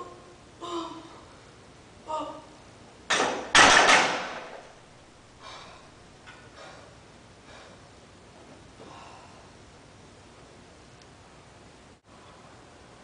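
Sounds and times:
faint breathing: 5.3s - 7.9s, 8.8s - 9.6s.

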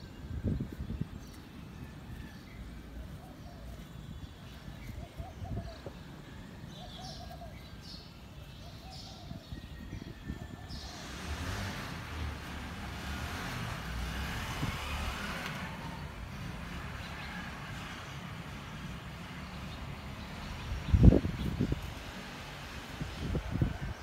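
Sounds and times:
tyres hissing on wet street: 10.9s - 20.9s, 21.6s - 24.0s.

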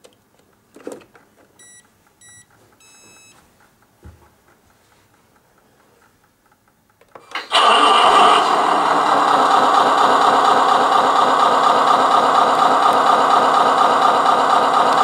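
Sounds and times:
simulated diesel engine idling: 7.5s - 15.0s.

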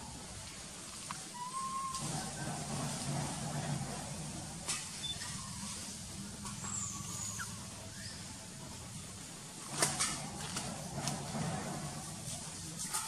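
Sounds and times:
faint high squeak: 4.9s - 8.3s.

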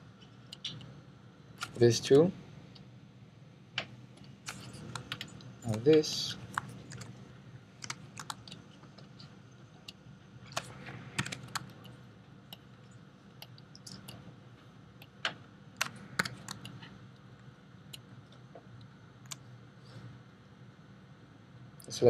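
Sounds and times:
faint low hum: 0.0s - 22.0s
keyboard and mouse clicks: 0.5s - 0.9s, 4.5s - 7.2s, 7.8s - 9.1s, 9.8s - 12.7s, 13.4s - 14.2s, 15.0s - 16.9s.

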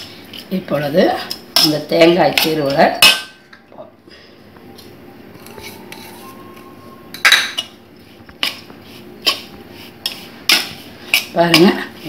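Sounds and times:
spoon scraping steel bowl: 5.4s - 6.6s.

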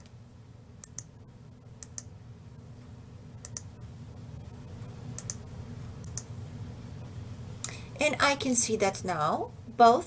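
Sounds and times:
faint low hum: 0.0s - 10.0s
computer mouse clicking: 0.8s - 1.1s, 1.8s - 2.1s, 3.4s - 3.7s, 5.1s - 5.4s, 6.0s - 6.3s.

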